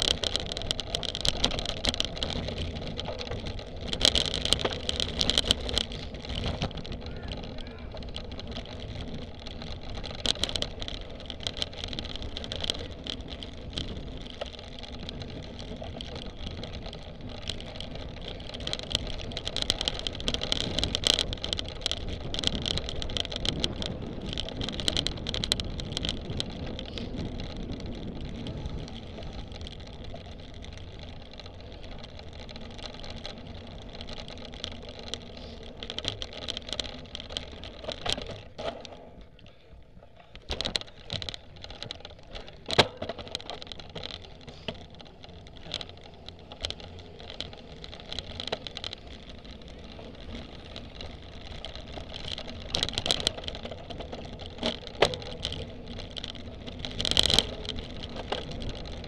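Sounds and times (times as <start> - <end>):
bike chain and frame rattling: 0.0 - 59.0
tyres rumbling on dirt: 0.0 - 59.0.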